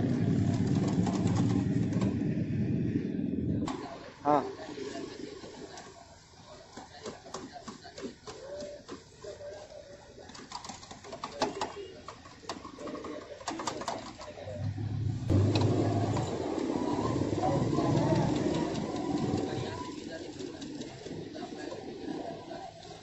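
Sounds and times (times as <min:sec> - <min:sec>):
low hum: 0:14.5 - 0:18.0.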